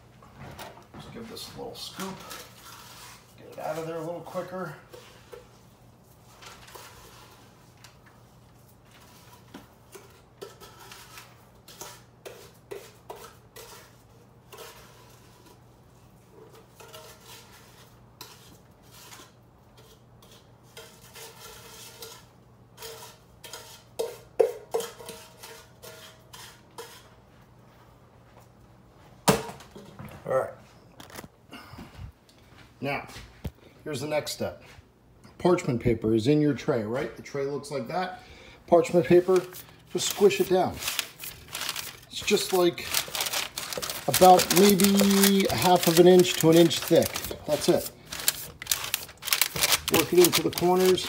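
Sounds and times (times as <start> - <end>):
spoon scraping metal bowl: 9.2 - 15.7, 16.4 - 27.2.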